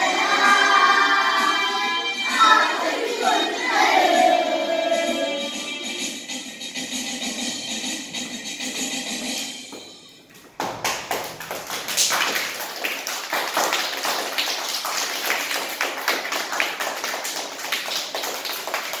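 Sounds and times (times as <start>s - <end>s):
children clapping: 10.4s - 19.0s.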